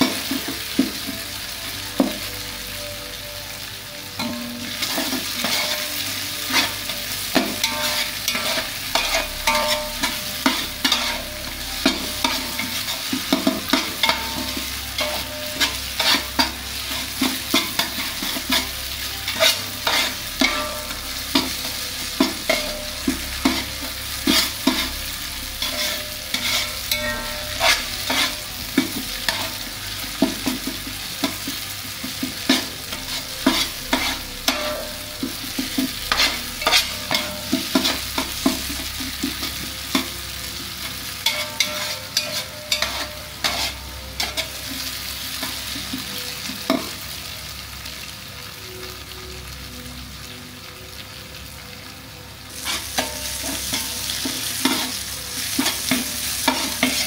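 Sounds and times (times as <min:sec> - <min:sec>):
onions sizzling: 0:00.0 - 0:57.0
metal spatula scraping a pot: 0:04.2 - 0:29.7, 0:32.4 - 0:40.1, 0:40.9 - 0:45.6.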